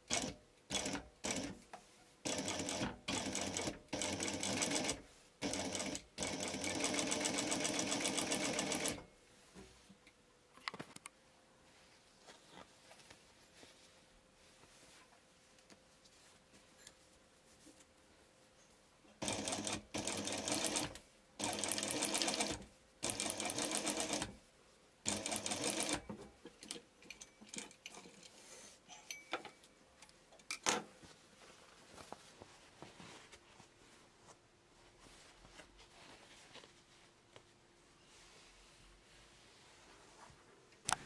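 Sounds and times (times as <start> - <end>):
sewing machine stitching: 2.3 - 9.0, 19.2 - 24.3, 25.1 - 26.0.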